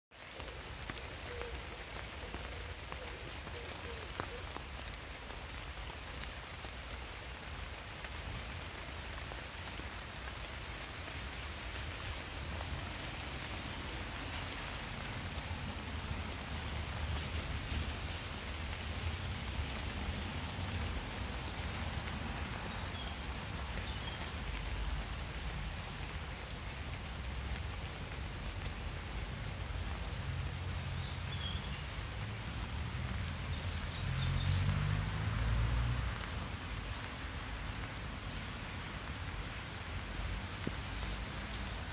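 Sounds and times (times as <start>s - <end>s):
rain falling on leaves: 0.1s - 41.9s.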